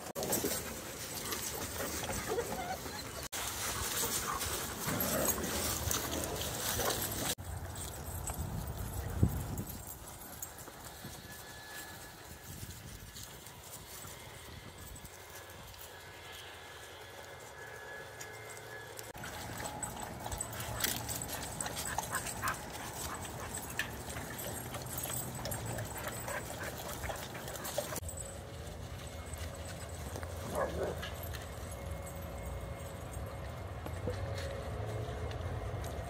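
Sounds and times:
dogs scuffling: 0.1 - 14.2, 19.1 - 32.4
dog whining: 2.2 - 3.3
paws and claws clicking: 19.1 - 28.0.

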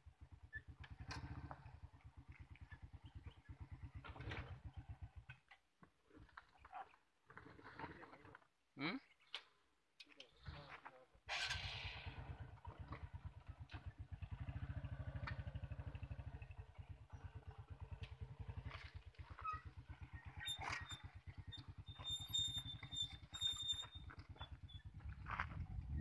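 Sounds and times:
motorcycle engine idling: 0.0 - 6.6, 11.6 - 26.0
thin high squeaks: 19.4 - 24.9.

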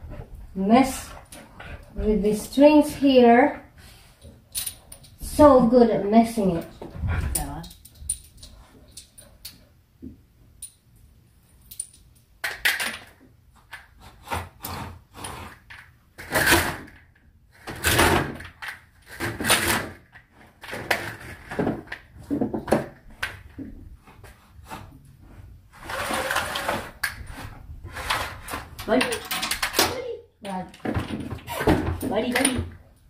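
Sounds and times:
window blind slats clattering: 25.8 - 29.9.

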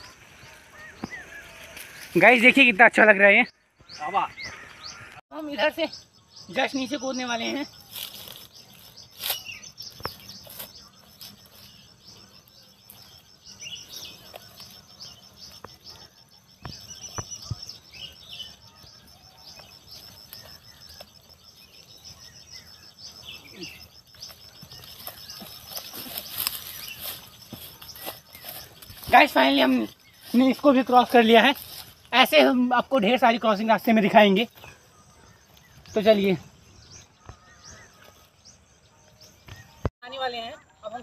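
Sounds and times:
dry grass rustling: 0.0 - 2.7, 7.2 - 36.3
birds chirping: 0.0 - 41.0
insects calling: 0.0 - 41.0
feet sliding on loose earth: 16.7 - 32.2.

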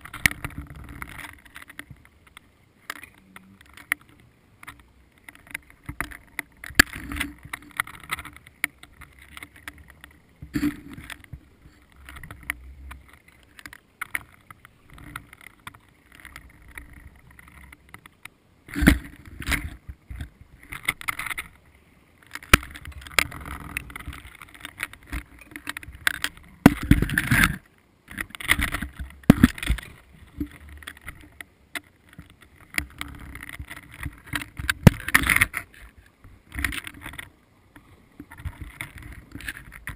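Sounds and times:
underwater clicks and knocks: 0.0 - 21.6, 22.2 - 39.9
rushing scraping water noise: 0.0 - 39.9.

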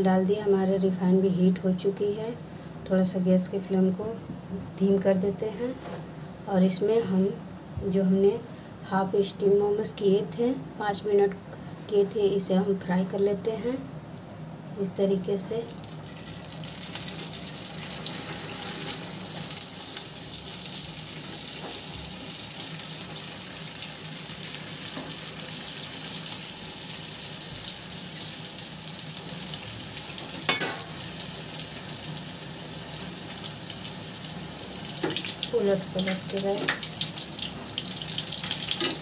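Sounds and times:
dumplings sizzling in oil: 15.7 - 39.0.

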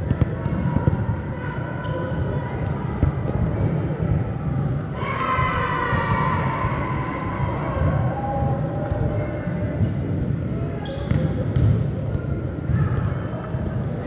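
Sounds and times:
volleyballs hit and bouncing: 2.9 - 4.3, 11.0 - 14.0.

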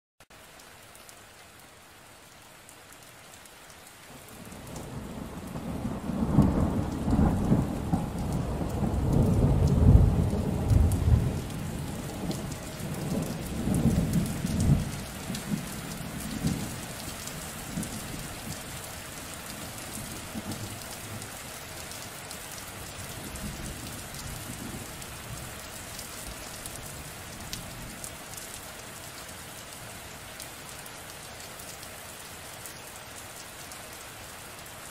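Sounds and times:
steady rain: 0.2 - 34.9
rolling thunder: 4.7 - 16.8.

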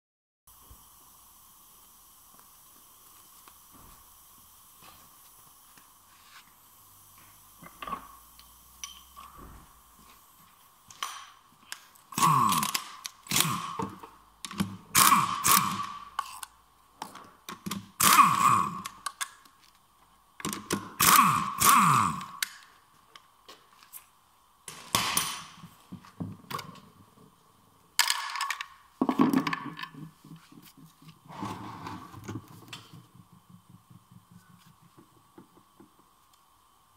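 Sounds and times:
ratchet wrench clicking: 12.2 - 13.8, 15.0 - 16.5, 18.0 - 19.3, 20.4 - 22.6.

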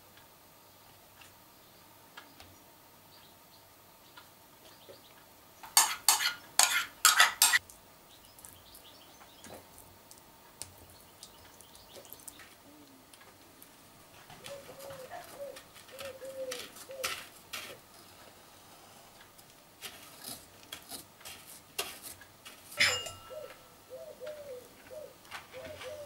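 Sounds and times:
knife scraping cake: 5.8 - 7.6, 19.8 - 22.8
dove cooing: 12.0 - 19.2, 22.8 - 26.0
sharp metallic clink: 22.8 - 23.7.

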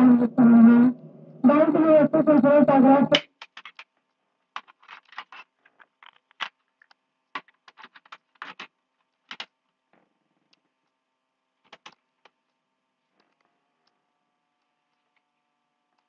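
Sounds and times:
faint electrical hum: 0.0 - 16.0
scattered clicks and taps: 3.1 - 11.0.

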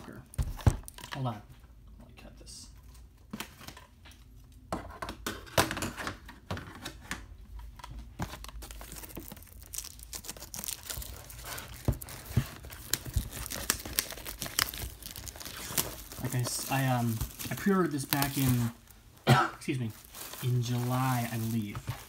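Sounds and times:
plastic shrink wrap crinkling: 7.8 - 22.0.

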